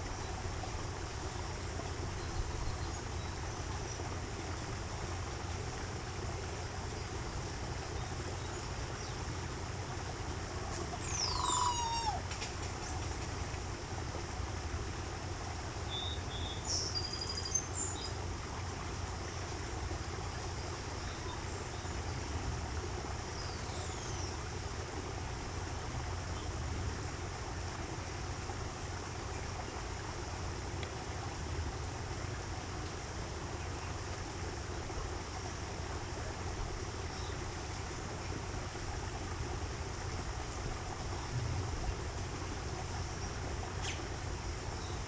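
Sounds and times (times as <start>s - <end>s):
stream water running: 0.0s - 45.0s
high bird chirps: 11.0s - 12.2s.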